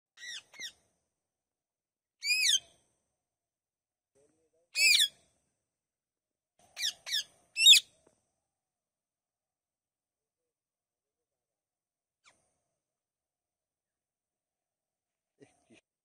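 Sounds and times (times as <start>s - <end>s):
parakeet calls: 0.2s - 0.8s, 2.2s - 2.6s, 4.8s - 5.1s, 6.8s - 7.8s.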